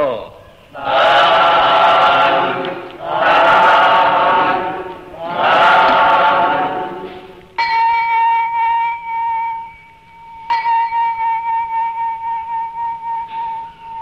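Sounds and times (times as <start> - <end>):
voices chanting drawn-out calls: 0.6 - 7.6
bright ringing bell: 7.6 - 13.9.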